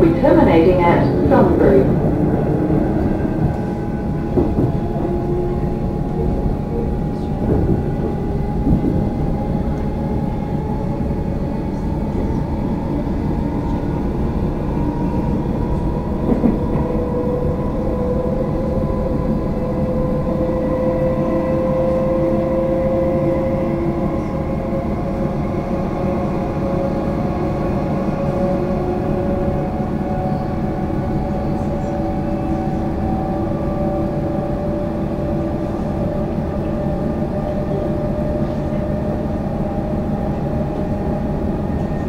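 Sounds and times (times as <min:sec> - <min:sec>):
train wheels rumbling on rail: 0:00.0 - 0:42.0.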